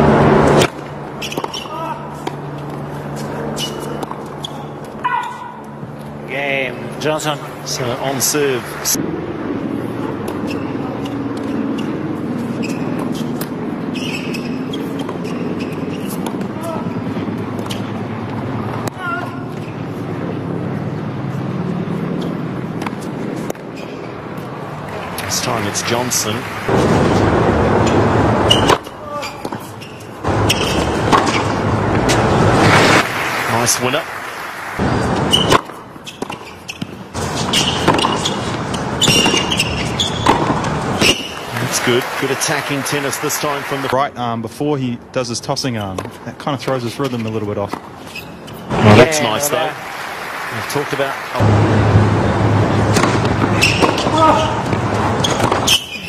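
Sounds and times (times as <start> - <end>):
rackets hitting tennis ball: 0.4 - 5.8, 10.2 - 19.9, 22.2 - 33.4, 34.7 - 43.6, 52.7 - 56.0
tennis ball bouncing: 0.5 - 6.0, 10.2 - 19.9, 21.9 - 32.4, 34.8 - 41.9, 52.7 - 56.0
shoes squeaking on court: 0.5 - 6.2, 10.2 - 20.3, 21.2 - 27.2, 27.8 - 33.0, 34.8 - 42.0, 45.8 - 49.7, 52.9 - 56.0
crowd applauding: 24.9 - 27.3, 32.3 - 35.0, 41.2 - 44.0, 48.7 - 52.0
crowd murmur: 48.7 - 53.0.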